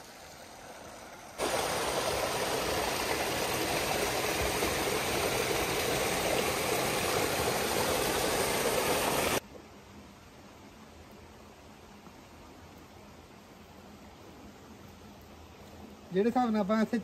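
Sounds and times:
waterfall rushing: 0:01.4 - 0:09.4.

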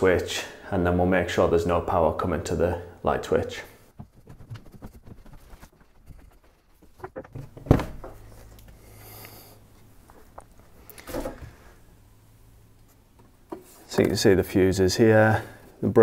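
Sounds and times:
low steady hum: 0:00.0 - 0:16.0
footsteps down stairs: 0:03.9 - 0:08.4.

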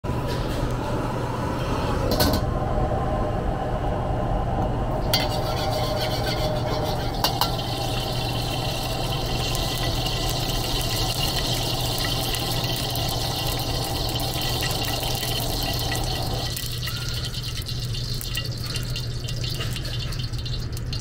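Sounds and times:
gas burner rumbling: 0:00.0 - 0:21.0
oil sizzling in wok: 0:05.1 - 0:21.0.

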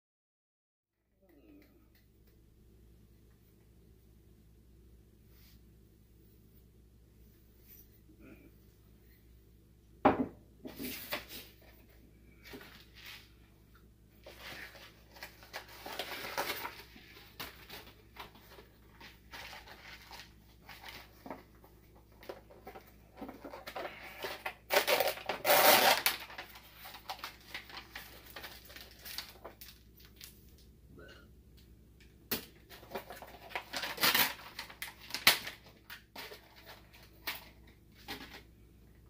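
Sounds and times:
plastic packaging crinkling: 0:14.2 - 0:30.7, 0:32.3 - 0:38.5.

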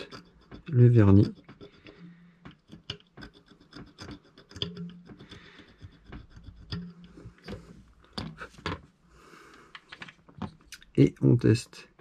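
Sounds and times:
metal probe scratching circuit board: 0:00.0 - 0:07.6.

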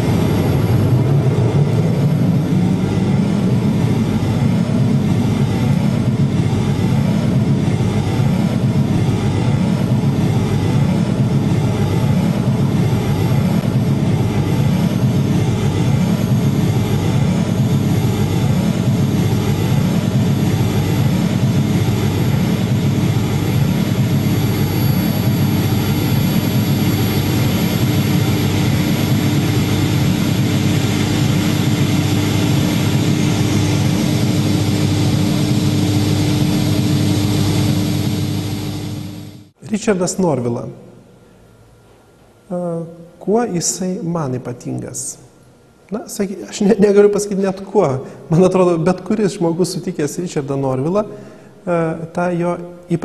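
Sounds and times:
loud dense low drone: 0:00.0 - 0:41.1
steady hum-like tone: 0:00.0 - 0:53.0.

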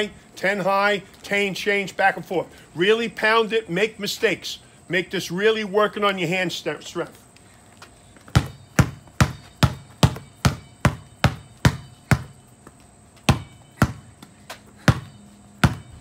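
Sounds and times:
basketball bouncing on concrete: 0:08.2 - 0:16.0.

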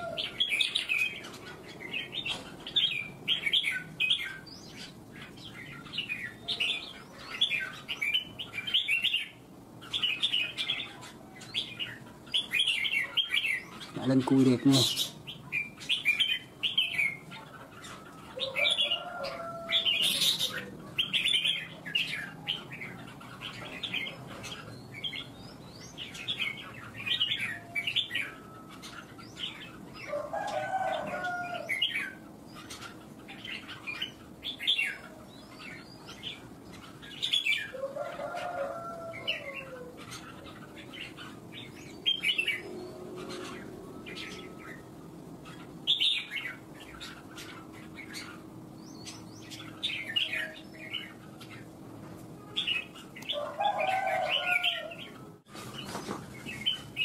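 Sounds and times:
birds singing whistled phrases: 0:00.0 - 0:30.2.

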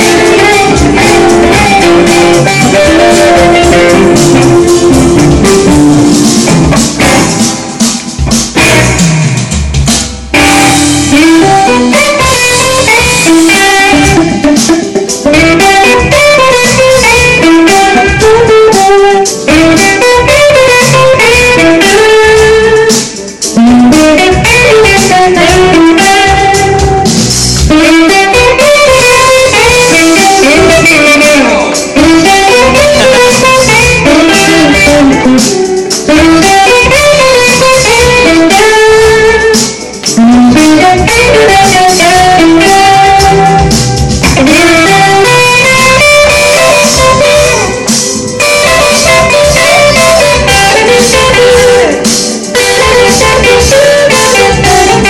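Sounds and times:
electric guitar lead lines: 0:00.0 - 0:55.0.

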